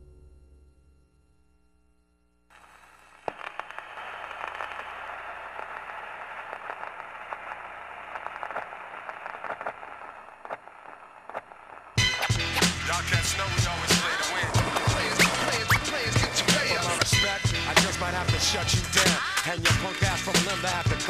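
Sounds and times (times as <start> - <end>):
crackling static: 2.5 - 21.0.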